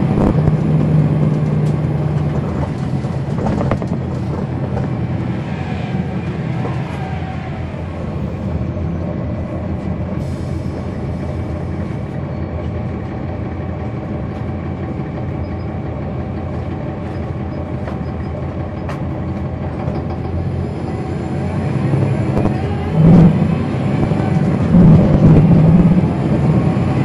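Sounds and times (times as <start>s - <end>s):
bus diesel engine running: 0.0s - 27.0s
steady whine: 20.7s - 27.0s.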